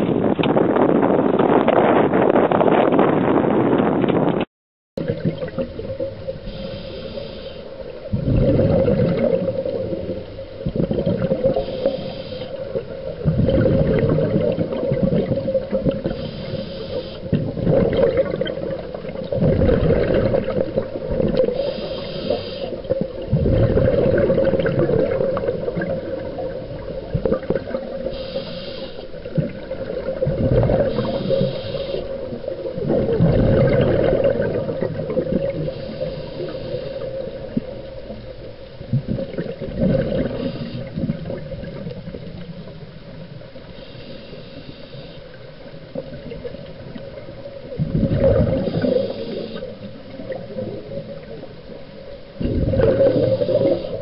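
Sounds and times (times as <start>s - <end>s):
wind buffeting microphone: 0.0s - 4.5s
water rushing along hull: 5.0s - 54.0s.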